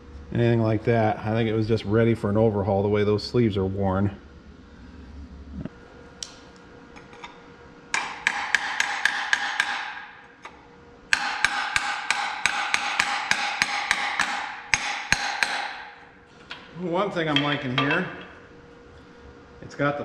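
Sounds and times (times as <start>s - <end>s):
hammer striking metal ringing: 7.9s - 10.2s, 11.1s - 16.0s.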